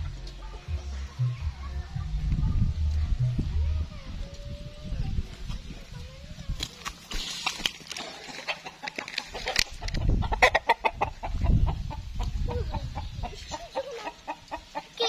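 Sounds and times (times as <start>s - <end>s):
low rumble: 0.0s - 6.2s
rooster clucking: 7.4s - 15.0s.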